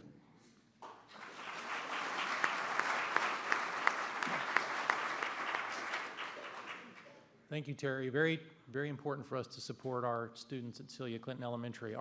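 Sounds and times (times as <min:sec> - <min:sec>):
audience applauding: 0:01.1 - 0:07.2.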